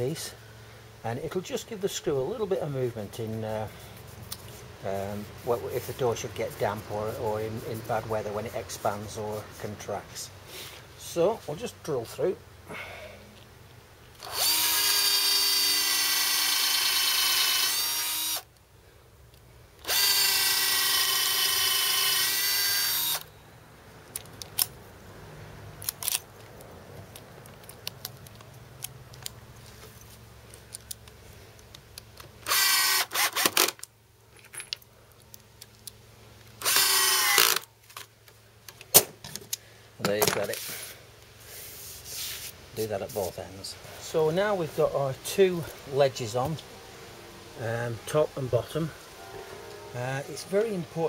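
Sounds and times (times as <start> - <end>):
power drill boring wood: 14.2 - 18.5, 19.8 - 23.2, 32.5 - 33.7, 36.6 - 37.6.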